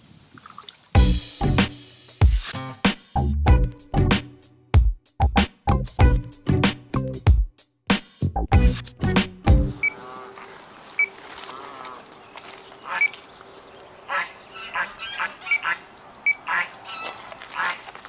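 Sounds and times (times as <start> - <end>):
waterfowl calling: 9.8 - 18.0.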